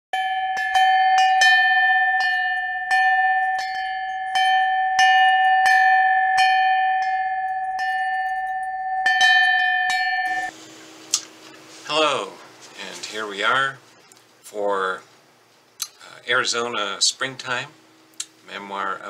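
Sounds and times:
bell struck repeatedly: 0.2s - 10.5s.

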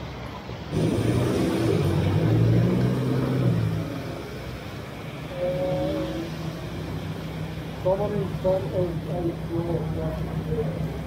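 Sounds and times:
wet road noise: 0.0s - 11.0s
vehicle engine passing: 0.6s - 11.0s
heavy rain: 0.7s - 11.0s.

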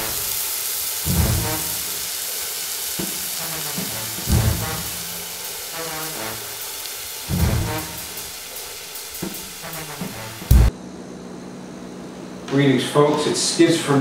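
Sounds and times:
oil sizzling: 0.0s - 10.7s
deep booming hits: 1.1s - 1.9s, 3.0s - 5.4s, 7.3s - 8.4s, 9.2s - 10.7s
theme music: 1.1s - 2.0s, 3.4s - 10.7s.

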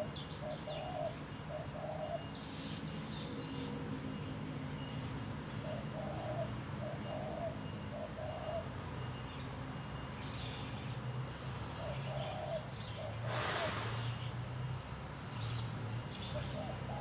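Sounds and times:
dove cooing: 0.0s - 2.6s, 5.5s - 9.1s, 11.6s - 13.8s, 16.2s - 17.0s.

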